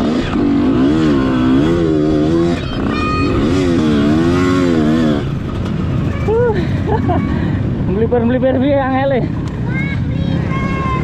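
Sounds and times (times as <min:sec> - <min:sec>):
motorcycle engine revving: 0:00.0 - 0:06.9.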